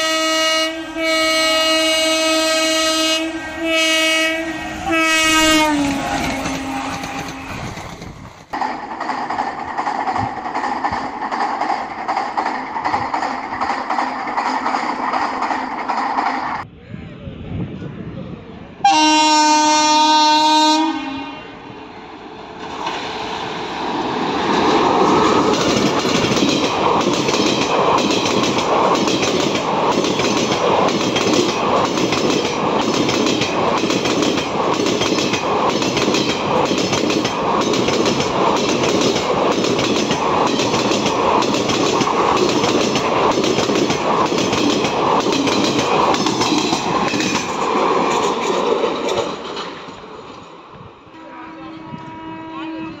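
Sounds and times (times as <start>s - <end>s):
locomotive horn: 0.0s - 7.7s, 18.8s - 21.6s, 51.1s - 53.0s
train wheels clattering over crossing: 4.7s - 16.6s, 22.6s - 50.6s.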